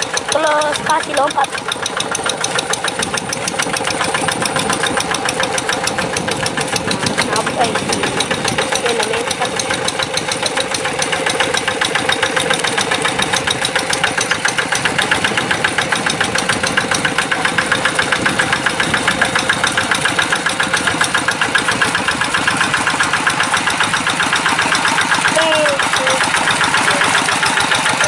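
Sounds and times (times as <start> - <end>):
diesel engine chugging: 0.0 - 28.0.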